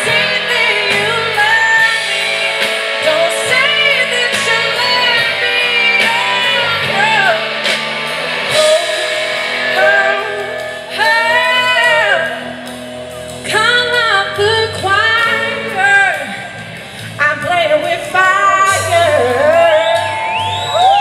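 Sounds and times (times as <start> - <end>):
woman singing: 0.0 - 7.6, 8.5 - 12.5, 13.4 - 16.5, 17.2 - 20.5
bass guitar: 0.0 - 21.0
drums: 0.0 - 21.0
electric guitar: 0.0 - 21.0.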